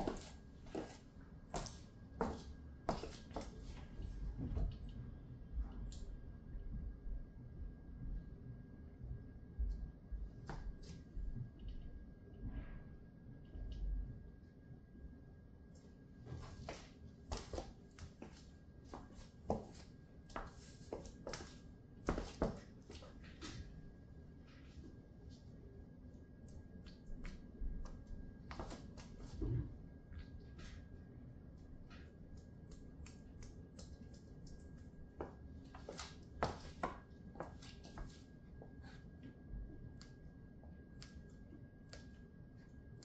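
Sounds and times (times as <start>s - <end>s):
heels clicking on floor: 0.0s - 1.0s, 1.6s - 3.9s, 16.4s - 23.2s, 33.8s - 38.8s.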